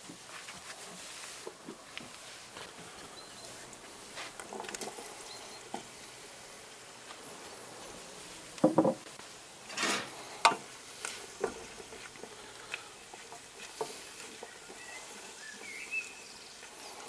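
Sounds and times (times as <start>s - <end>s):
wooden spatula scraping a steel pan: 9.7s - 17.0s.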